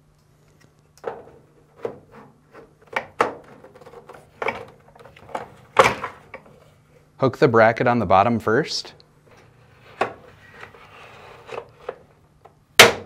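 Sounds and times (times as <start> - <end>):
plastic bracket clacking and scraping: 1.0 - 6.6.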